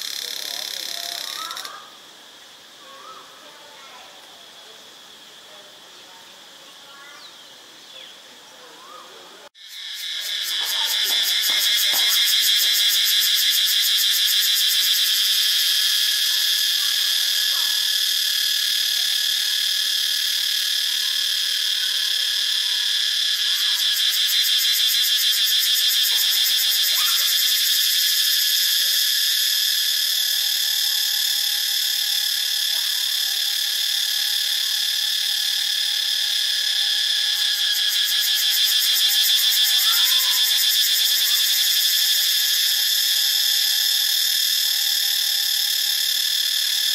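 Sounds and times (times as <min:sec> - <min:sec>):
cicada buzzing drone: 0:00.0 - 0:46.9.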